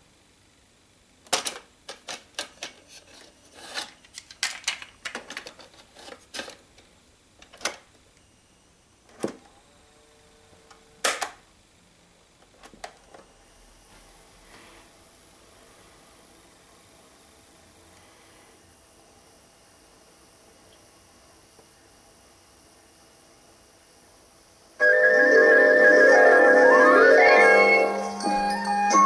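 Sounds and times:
faint high whine: 0:24.8 - 0:29.0.

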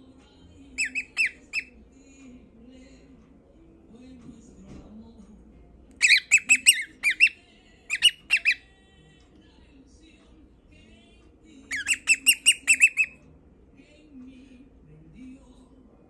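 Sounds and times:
cockatiel chirping: 0:00.8 - 0:01.8, 0:06.0 - 0:08.6, 0:11.7 - 0:13.2.

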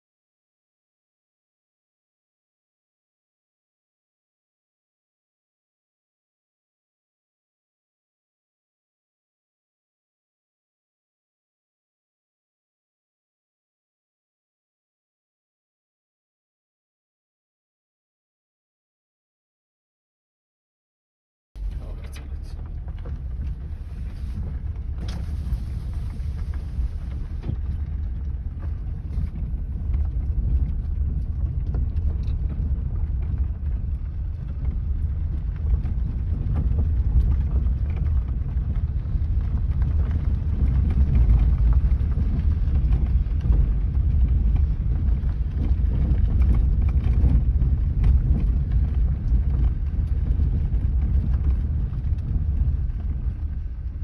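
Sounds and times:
tyres and engine rumbling: 0:21.6 - 0:31.5
knocks and rattles on gravel: 0:21.6 - 0:54.0.

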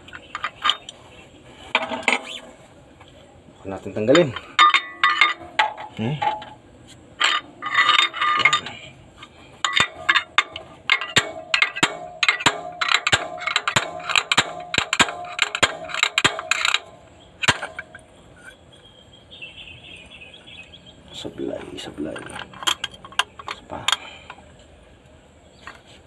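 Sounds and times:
slide hammer metal clanking: 0:04.1 - 0:06.6, 0:07.2 - 0:08.8, 0:09.6 - 0:18.7.

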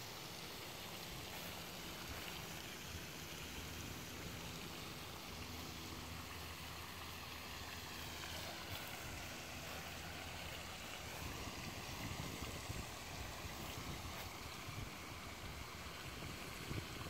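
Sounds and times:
even hiss: 0:00.0 - 0:17.0.

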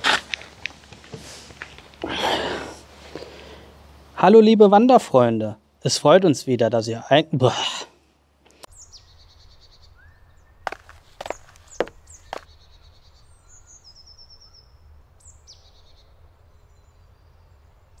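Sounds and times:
birds chirping: 0:08.5 - 0:18.0.

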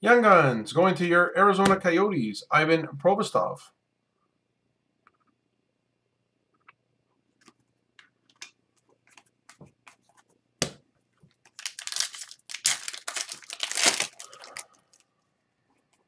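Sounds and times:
foil wrapper tearing and crinkling: 0:11.4 - 0:15.0.

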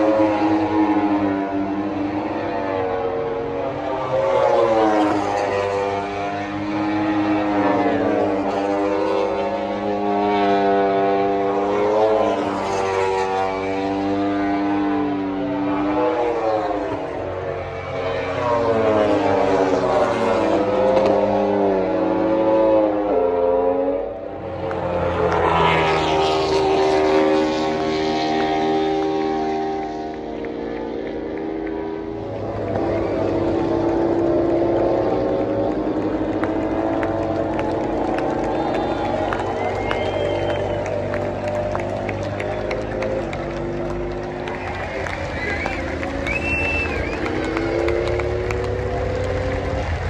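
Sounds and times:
racing motorcycles at high revs: 0:00.0 - 0:50.0.

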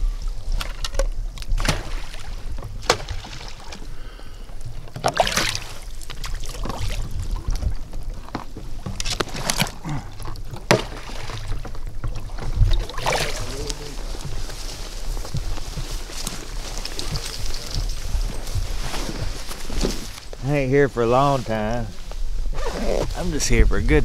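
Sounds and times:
water splashing and sloshing: 0:00.2 - 0:20.4
decoys splashing onto water: 0:01.4 - 0:08.1, 0:09.0 - 0:17.8.

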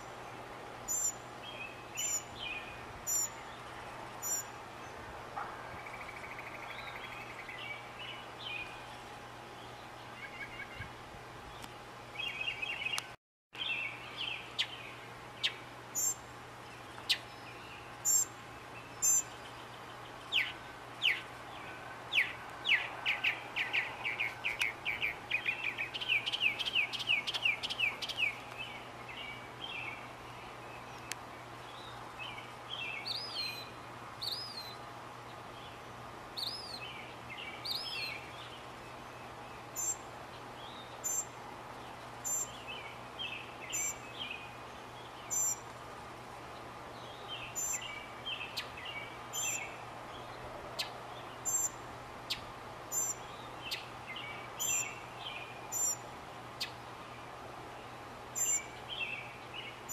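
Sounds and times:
low hum and hiss: 0:00.0 - 0:59.9
mockingbird singing: 0:00.9 - 0:03.6, 0:16.9 - 0:30.1, 0:42.2 - 0:45.6, 0:47.0 - 0:56.0, 0:58.4 - 0:59.9.

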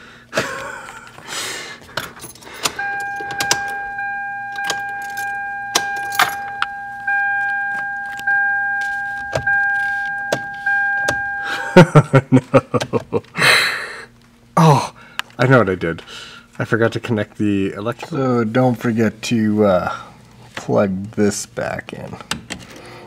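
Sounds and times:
keys jangling: 0:01.9 - 0:03.8, 0:04.5 - 0:06.7
car warning buzzer: 0:02.6 - 0:11.9.

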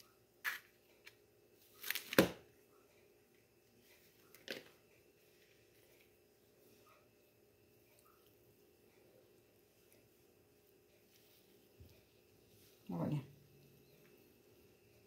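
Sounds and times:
package rustling: 0:01.7 - 0:02.4.

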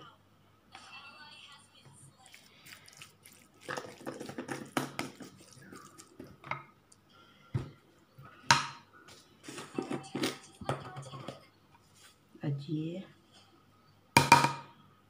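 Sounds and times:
spatula squelching in filling: 0:02.2 - 0:06.4.

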